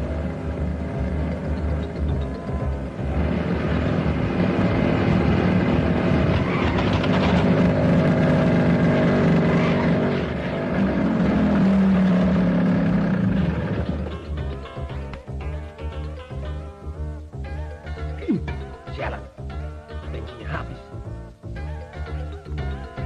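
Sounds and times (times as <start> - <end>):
motorcycle engine revving: 0.0 - 14.6.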